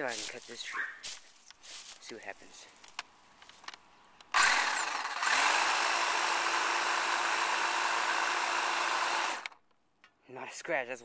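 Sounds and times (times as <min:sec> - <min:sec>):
electric hedge trimmer buzzing: 0:04.3 - 0:09.6.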